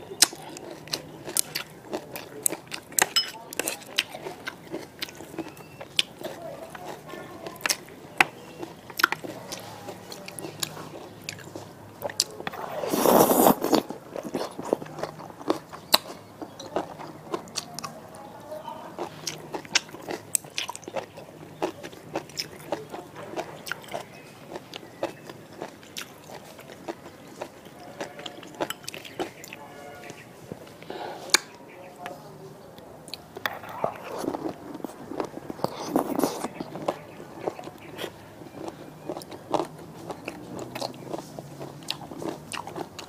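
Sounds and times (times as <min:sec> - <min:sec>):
crunching and chewing food: 0:00.0 - 0:32.2, 0:32.8 - 0:43.0
loud slurp: 0:12.5 - 0:13.9.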